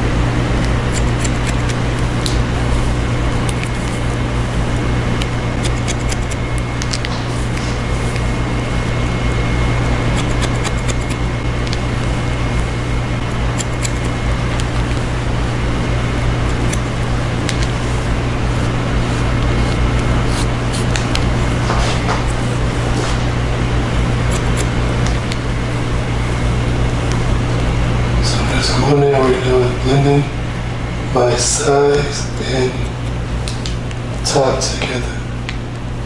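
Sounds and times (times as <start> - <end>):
steady low hum: 0.0 - 36.0
scissors snipping hair: 0.6 - 2.4, 3.5 - 4.0, 5.2 - 8.3, 10.1 - 11.8, 13.3 - 15.1, 16.5 - 17.8, 24.3 - 25.4.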